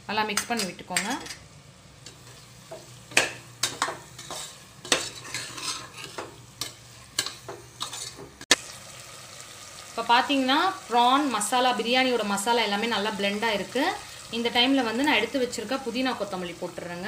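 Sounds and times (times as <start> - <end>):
food sizzling: 0.8 - 17.0
metal spatula scraping a pot: 3.6 - 8.3.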